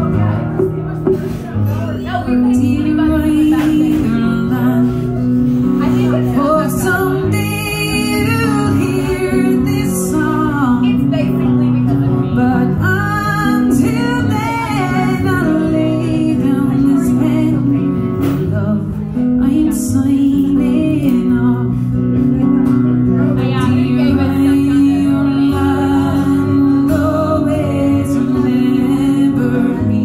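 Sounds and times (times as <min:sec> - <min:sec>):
acoustic guitar: 0:00.0 - 0:30.0
woman singing: 0:02.2 - 0:22.2, 0:23.4 - 0:30.0.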